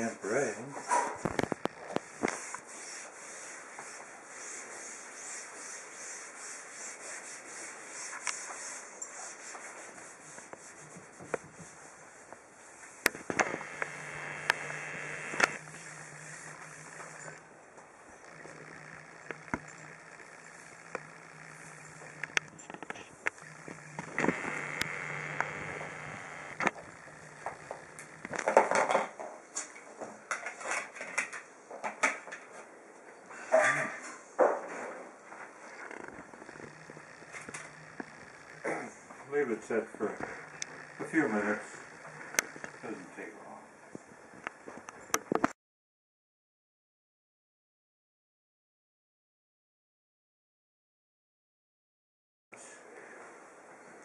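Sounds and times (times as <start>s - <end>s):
damp rag swishing on glass: 2.3s - 12.9s.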